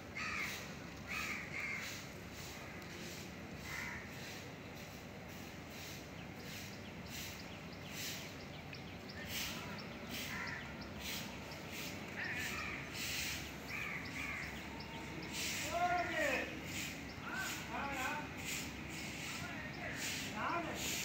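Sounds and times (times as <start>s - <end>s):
outdoor background noise: 0.0s - 21.0s
crows cawing: 0.1s - 4.5s, 10.1s - 11.1s, 11.7s - 16.2s
small bird chirping: 5.8s - 20.6s.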